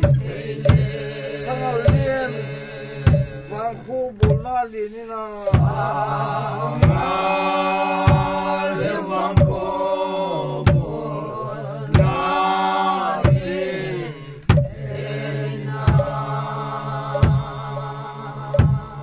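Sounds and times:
drum beats: 0:00.0 - 0:02.4, 0:03.0 - 0:03.5, 0:04.2 - 0:04.6, 0:05.4 - 0:06.0, 0:06.7 - 0:09.8, 0:10.7 - 0:11.0, 0:12.0 - 0:13.8, 0:14.4 - 0:15.0, 0:15.8 - 0:16.4, 0:17.1 - 0:19.0
group of voices chanting: 0:00.0 - 0:03.8, 0:05.3 - 0:19.0.

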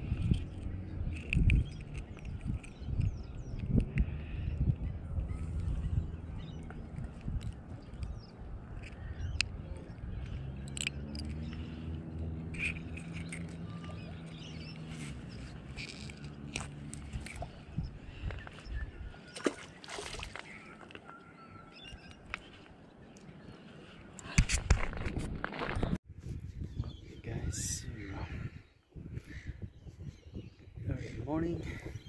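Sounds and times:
fishing tackle clicks and rustles: 0:00.0 - 0:04.1, 0:06.6 - 0:09.6, 0:10.2 - 0:18.7.

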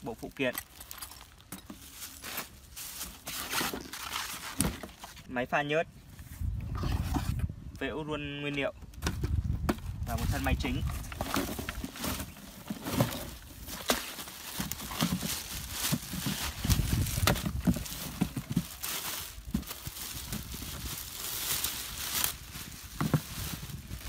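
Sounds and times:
cardboard box scraping: 0:01.8 - 0:05.3, 0:10.2 - 0:24.0
plastic wrapping crinkling: 0:11.1 - 0:24.0.

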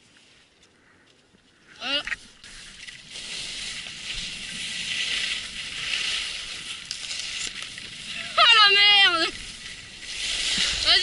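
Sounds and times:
skis scraping over snow: 0:02.5 - 0:11.0.

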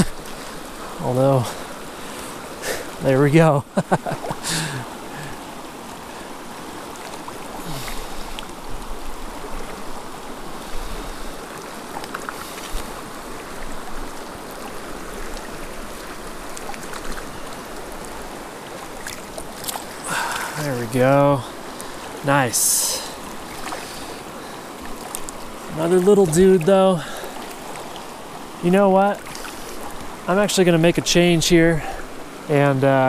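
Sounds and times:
river flowing over stones: 0:00.0 - 0:33.0.

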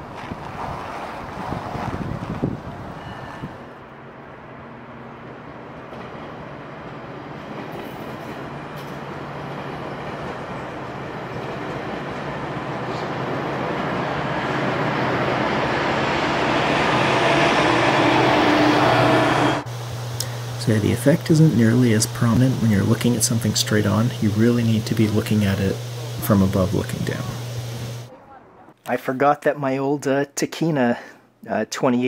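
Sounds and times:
train passing rumble: 0:00.0 - 0:28.8
diesel locomotive hum: 0:02.1 - 0:28.8.

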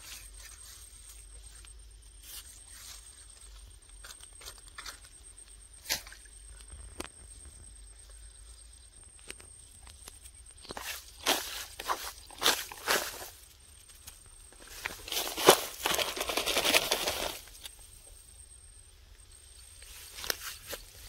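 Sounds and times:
cloth bag and grass rustling: 0:10.7 - 0:13.5, 0:14.6 - 0:17.7.

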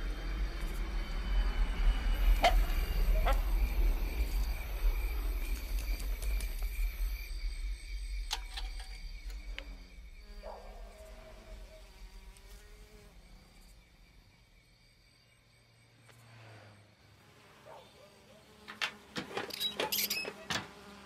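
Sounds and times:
high insect tone: 0:00.0 - 0:21.0
thin insect buzz: 0:08.9 - 0:21.0.

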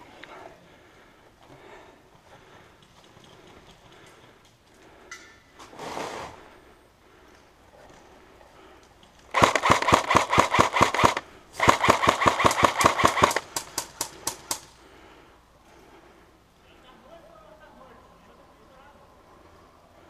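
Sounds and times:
airsoft rifle full-auto bursts: 0:09.3 - 0:14.6.

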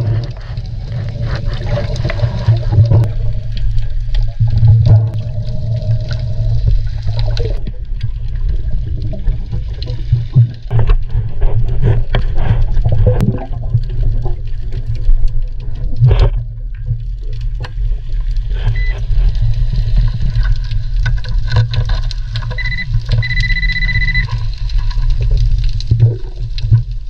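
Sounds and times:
underwater rumble of water: 0:00.0 - 0:27.0
metal detector high beep: 0:22.6 - 0:24.3.

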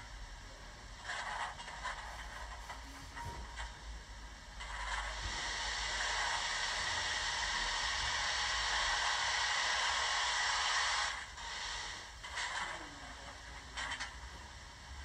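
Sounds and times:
steam hiss from small speaker: 0:04.6 - 0:15.0.

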